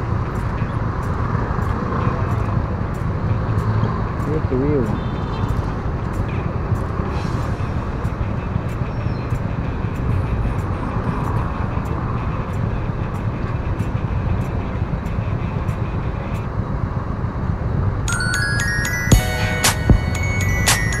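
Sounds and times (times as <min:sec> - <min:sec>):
faint regular ticking: 0:00.0 - 0:07.1, 0:08.0 - 0:17.0
street traffic noise: 0:00.0 - 0:21.0
chime-like music tones: 0:18.1 - 0:21.0.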